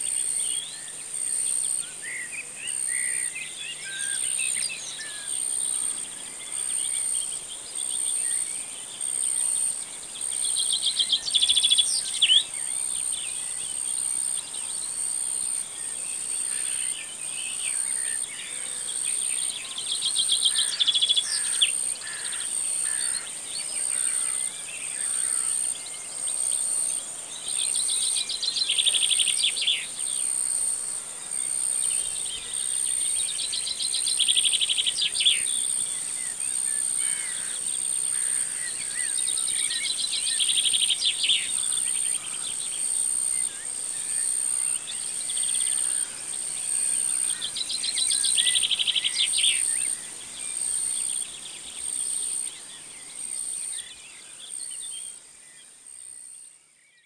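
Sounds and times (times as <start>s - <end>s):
insects buzzing: 0.0s - 56.8s
bird chirps: 31.4s - 57.0s.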